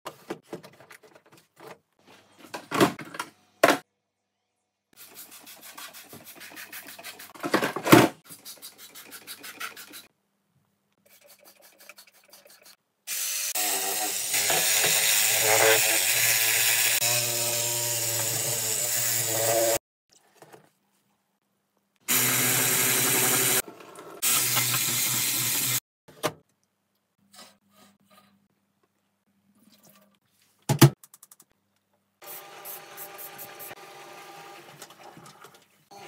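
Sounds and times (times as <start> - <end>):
scraping and rubbing strokes: 8.2 - 10.1, 11.0 - 12.8.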